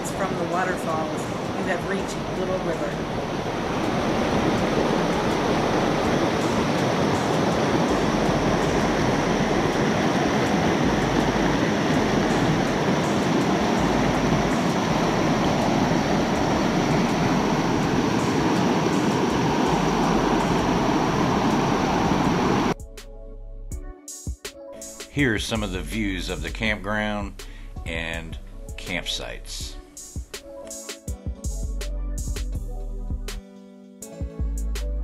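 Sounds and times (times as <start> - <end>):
river rushing over rocks: 1.2 - 22.8.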